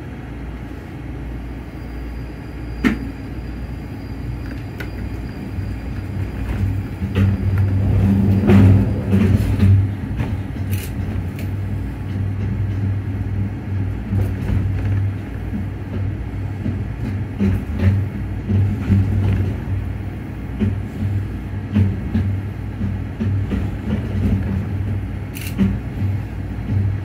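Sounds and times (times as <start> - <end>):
suspended rail car humming and rumbling: 0.0 - 27.0.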